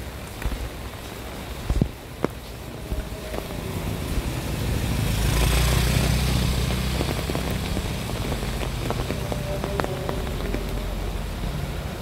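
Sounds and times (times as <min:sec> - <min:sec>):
steady rain: 0:00.0 - 0:12.0
water dripping: 0:00.2 - 0:12.0
motorcycle engine running: 0:04.2 - 0:11.0.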